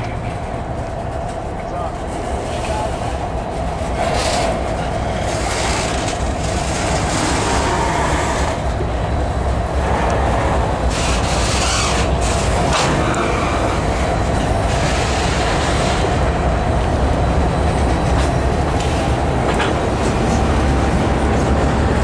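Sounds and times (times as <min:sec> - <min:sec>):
diesel locomotive rumble: 0:00.0 - 0:22.0
train wheels clacking on rails: 0:00.0 - 0:22.0.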